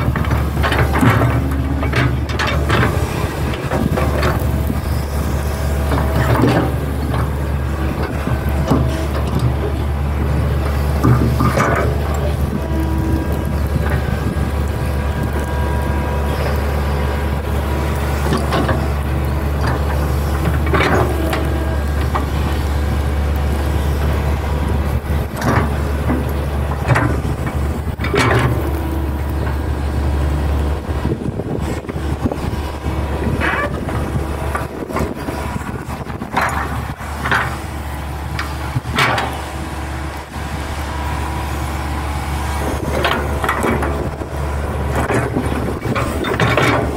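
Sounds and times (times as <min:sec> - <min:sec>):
excavator bucket knocks and clanks: 0:00.0 - 0:04.7, 0:25.4 - 0:29.6, 0:44.8 - 0:46.9
excavator diesel engine running: 0:00.0 - 0:46.9.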